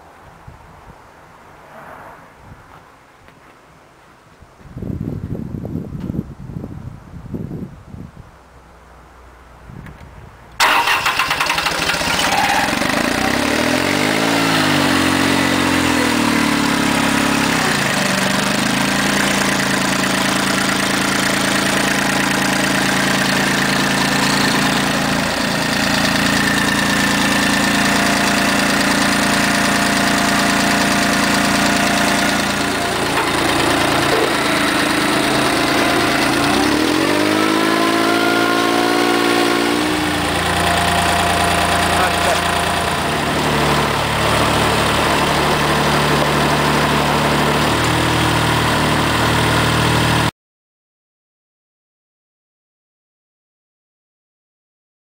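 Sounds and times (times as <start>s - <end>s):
tractor diesel engine revving: 10.6s - 50.3s.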